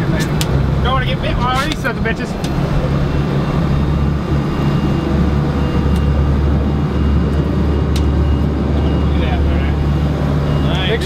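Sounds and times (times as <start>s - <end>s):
boat engine drone: 0.0s - 11.0s.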